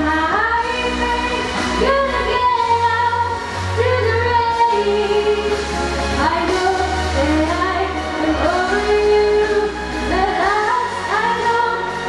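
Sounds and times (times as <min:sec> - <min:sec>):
girl singing into microphone: 0:00.0 - 0:05.6, 0:06.2 - 0:12.0
amplified backing music: 0:00.0 - 0:12.0.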